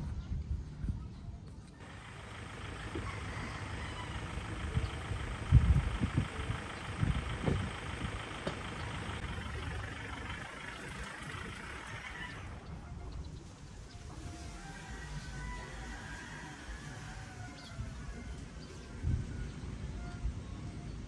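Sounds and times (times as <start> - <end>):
pickup engine idling: 1.8 - 13.7.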